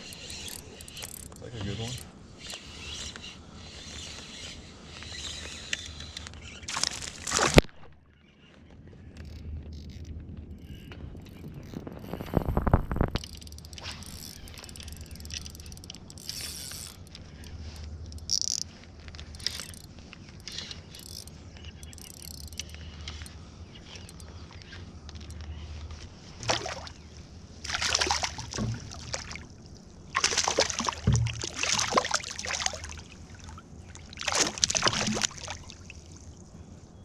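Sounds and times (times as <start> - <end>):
fishing reel gears clicking: 0.0 - 6.7, 13.1 - 25.4.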